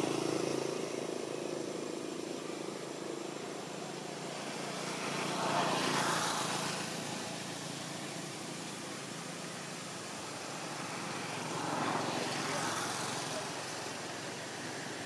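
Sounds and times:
traffic background: 0.0s - 15.0s
vehicle passing by: 0.0s - 15.0s.

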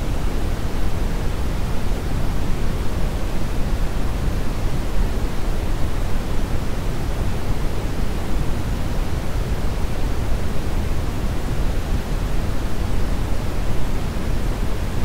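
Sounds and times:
deep brown noise hiss: 0.0s - 15.0s.

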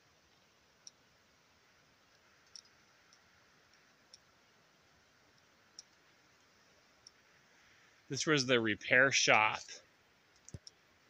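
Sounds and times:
faint hiss: 0.0s - 11.0s
faint sharp clicks: 2.1s - 4.3s, 5.3s - 6.0s, 10.3s - 10.8s.

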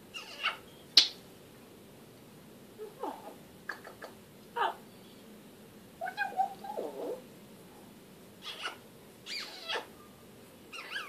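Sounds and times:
parrot calling: 0.1s - 0.7s, 2.8s - 4.8s, 6.0s - 7.2s, 8.4s - 10.0s, 10.7s - 11.0s.

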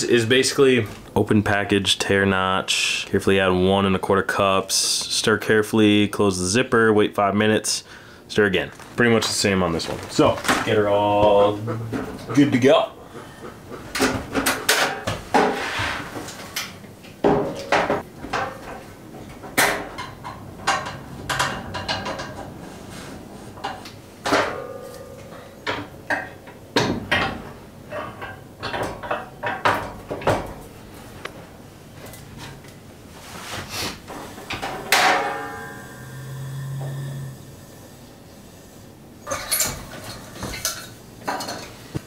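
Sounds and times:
sheet metal clanks and clicks: 17.5s - 22.6s, 23.6s - 30.6s.

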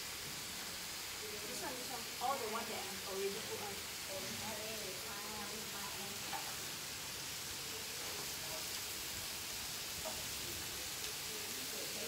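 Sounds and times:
meat sizzling on a grill: 0.0s - 12.0s.

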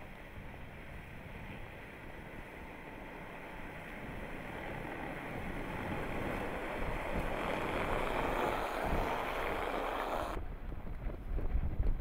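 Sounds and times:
wind rumble on microphone: 0.0s - 12.0s
car driving through snow: 1.0s - 10.4s.

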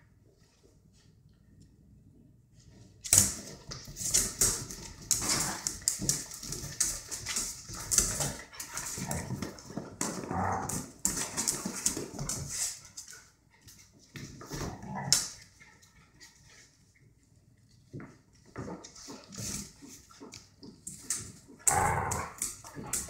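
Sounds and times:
claws clicking on tile floor: 3.0s - 13.8s, 18.0s - 23.0s.

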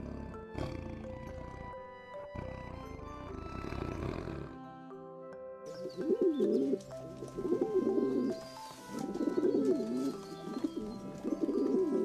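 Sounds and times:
background music: 0.0s - 12.0s
dove cooing: 5.8s - 12.0s.

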